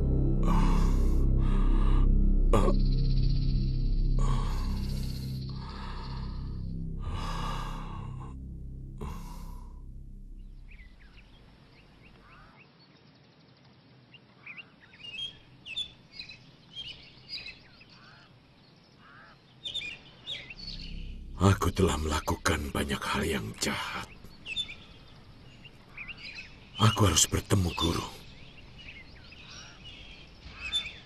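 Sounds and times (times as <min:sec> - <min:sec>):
birds chirping: 0:00.0 - 0:08.3, 0:09.0 - 0:31.0
low music drone: 0:00.0 - 0:12.1, 0:20.4 - 0:30.4
heavy gasping breaths: 0:04.2 - 0:08.4.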